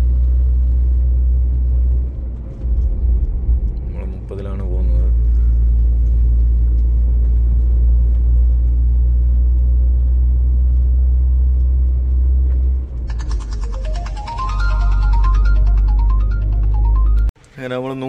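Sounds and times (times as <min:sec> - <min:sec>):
lorry engine drone: 0:00.0 - 0:17.3
road noise: 0:00.0 - 0:17.6
music: 0:13.4 - 0:17.3.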